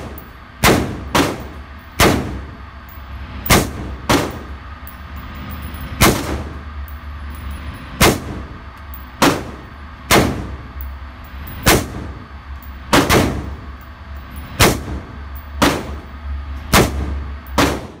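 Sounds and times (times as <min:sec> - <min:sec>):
pistol shots: 0:00.0 - 0:02.4, 0:03.5 - 0:04.4, 0:09.2 - 0:10.6, 0:12.9 - 0:13.5, 0:14.6 - 0:15.0, 0:15.6 - 0:16.0, 0:16.7 - 0:18.0
low hum: 0:00.0 - 0:18.0.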